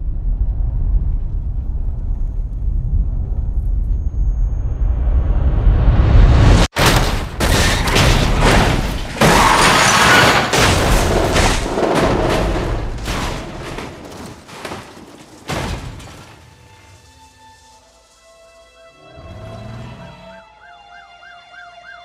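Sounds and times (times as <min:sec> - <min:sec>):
low rumble: 0:00.0 - 0:06.7
car crash booms and crunching: 0:06.7 - 0:17.1.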